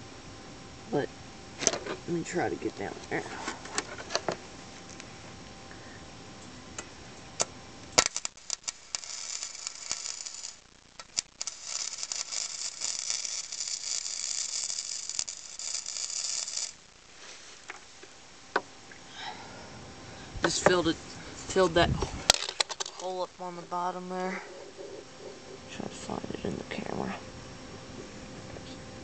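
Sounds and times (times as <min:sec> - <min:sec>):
welder arc crackling: 0:06.4 - 0:18.3.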